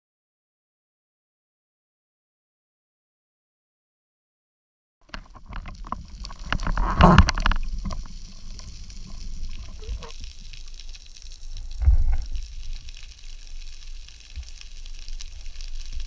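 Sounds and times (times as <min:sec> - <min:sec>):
crackling rush of bubbles: 0:05.0 - 0:16.0
water sloshing and bubbling: 0:05.0 - 0:16.0
low thump: 0:11.8 - 0:12.3.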